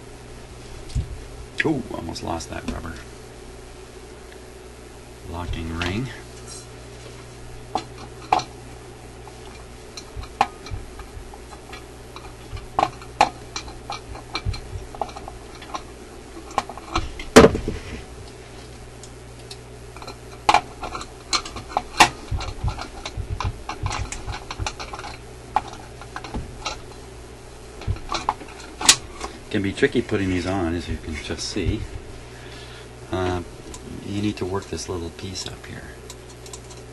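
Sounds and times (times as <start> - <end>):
turntable parts clicking and knocking: 7.5 - 8.6, 9.2 - 18.4, 19.0 - 32.1.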